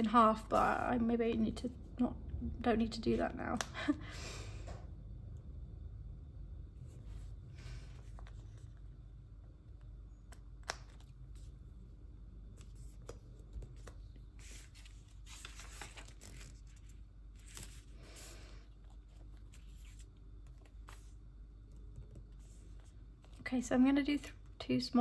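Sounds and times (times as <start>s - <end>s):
page turning: 12.6s - 18.3s, 19.2s - 21.2s.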